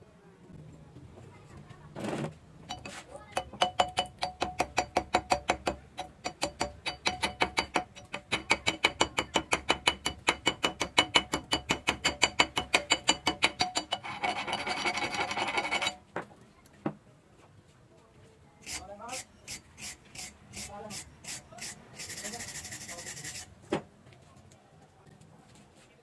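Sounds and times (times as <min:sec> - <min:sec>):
hand tool scraping metal: 0:02.7 - 0:16.0, 0:18.6 - 0:23.6.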